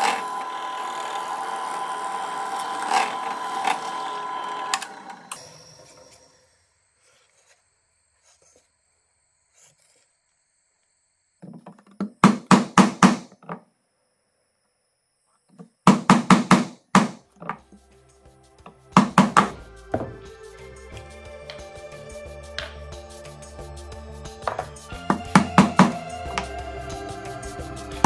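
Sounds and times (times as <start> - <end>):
background music: 17.2 - 28.0
chisel knocking into wood: 24.4 - 26.0.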